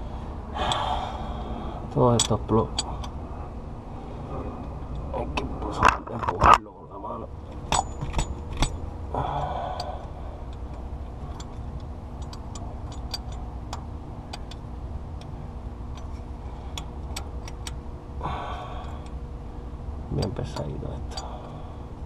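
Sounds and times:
low mechanical hum: 0:00.0 - 0:22.0
light metallic clicks: 0:02.1 - 0:03.2, 0:20.2 - 0:21.6.

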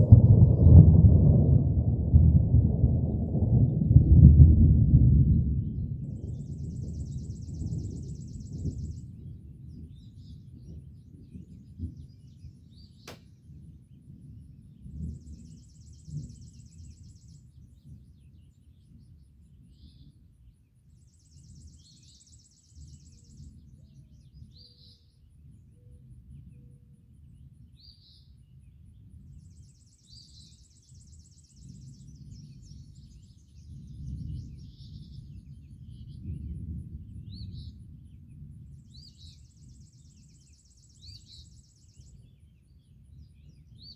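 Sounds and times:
distant thunder rumbling: 0:00.0 - 0:18.5, 0:30.4 - 0:41.6
bird chirps: 0:06.2 - 0:13.6, 0:21.0 - 0:26.8, 0:27.4 - 0:43.9.

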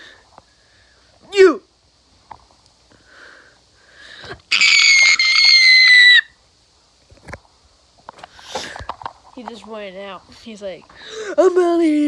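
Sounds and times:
child shrieking: 0:04.5 - 0:06.3.

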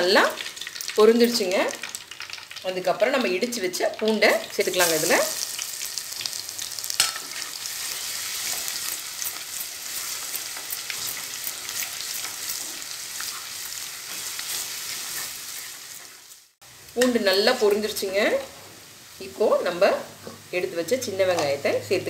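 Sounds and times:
garlic sizzling in hot oil: 0:00.0 - 0:22.0.

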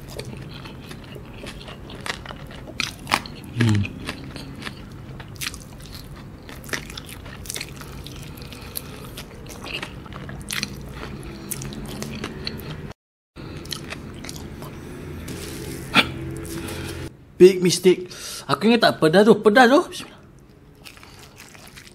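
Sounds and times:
biting and chewing chicken: 0:00.0 - 0:12.9, 0:20.4 - 0:21.9.

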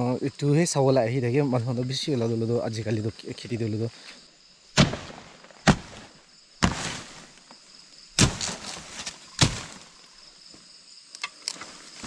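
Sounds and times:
leaves rustling: 0:04.0 - 0:10.7
blade chopping stalks: 0:04.8 - 0:07.4, 0:08.2 - 0:10.0.

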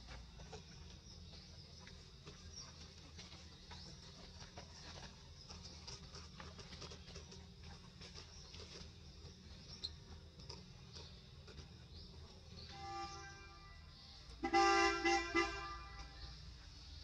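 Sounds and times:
monkeys scratchy patter and clicks: 0:00.0 - 0:12.7.

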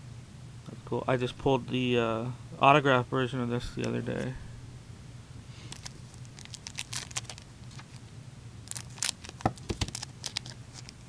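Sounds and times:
wrapper crinkling and tearing: 0:05.7 - 0:08.0, 0:08.6 - 0:11.0.

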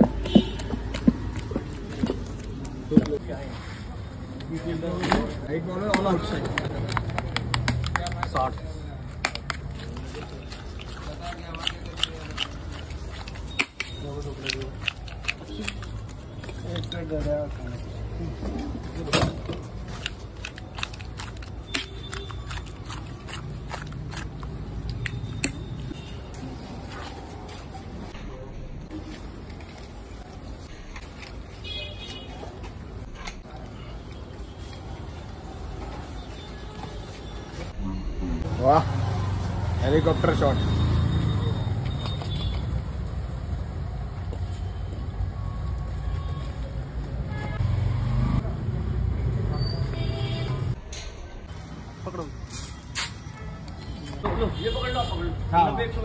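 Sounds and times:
low street hum: 0:00.0 - 0:56.0
metal spoon clinking on steel pots: 0:16.4 - 0:17.5
passing traffic rumble: 0:37.7 - 0:49.7.

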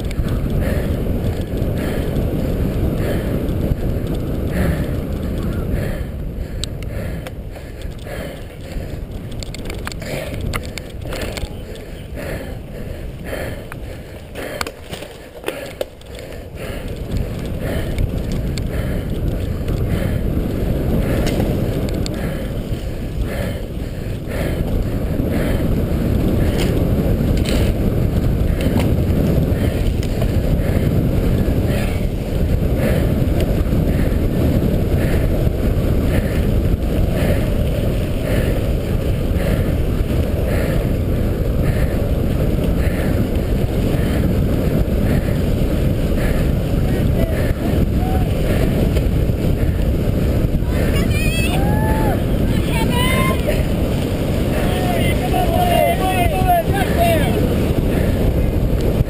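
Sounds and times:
bicycle tyre rumble: 0:00.0 - 0:59.0
wind buffeting microphone: 0:00.0 - 0:59.0.

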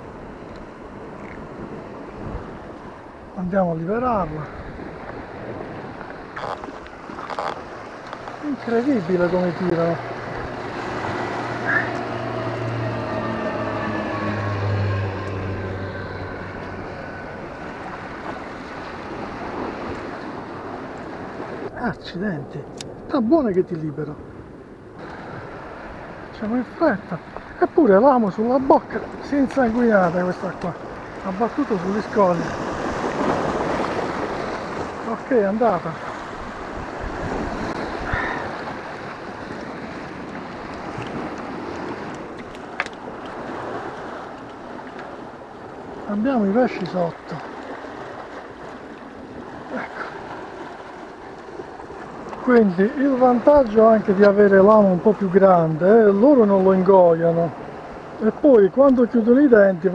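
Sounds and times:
waves washing against rocks: 0:00.9 - 0:21.7, 0:25.0 - 0:58.6
wind on microphone: 0:36.0 - 0:46.1.

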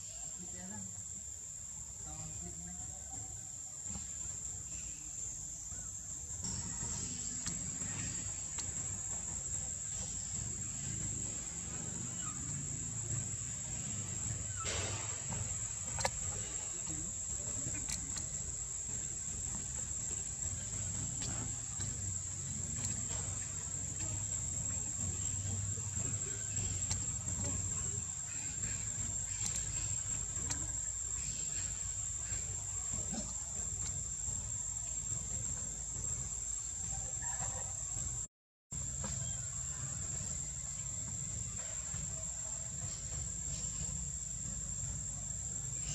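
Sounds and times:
insects chirring: 0:00.0 - 0:45.9
faint clicks: 0:07.2 - 0:08.8, 0:15.9 - 0:18.4.

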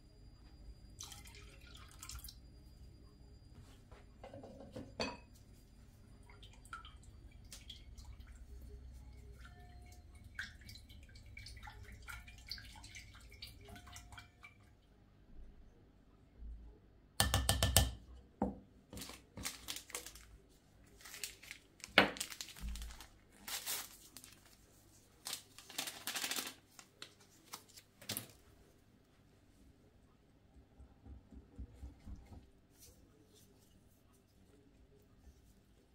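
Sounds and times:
packet rustling: 0:19.0 - 0:28.4.

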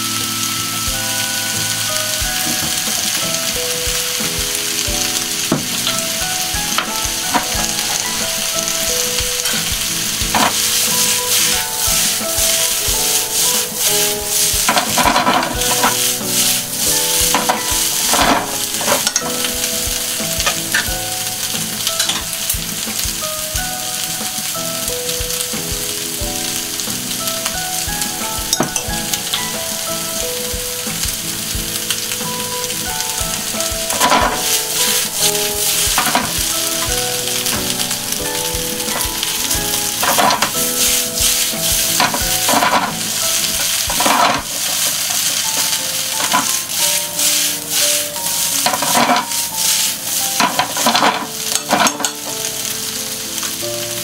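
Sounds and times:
food sizzling in a frying pan: 0:00.0 - 0:54.0
chopsticks scraping food in pan: 0:06.7 - 0:20.9, 0:33.4 - 0:52.3.

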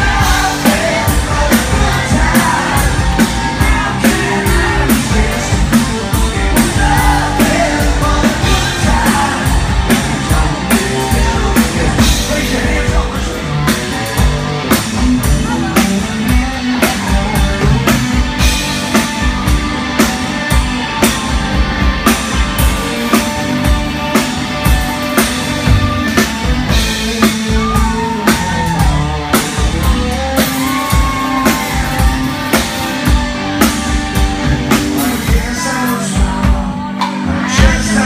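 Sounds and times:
person singing: 0:00.0 - 0:14.1, 0:34.4 - 0:38.0
drum kit beat: 0:00.0 - 0:38.0
electric guitar: 0:00.0 - 0:38.0.

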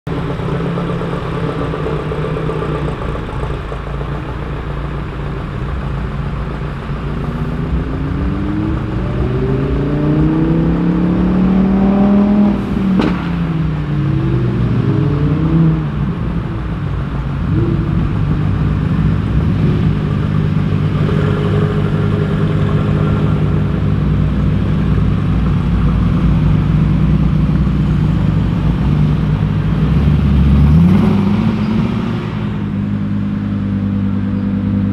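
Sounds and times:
car engines droning: 0:00.1 - 0:34.9
engine revving: 0:06.9 - 0:16.2, 0:17.4 - 0:34.9.

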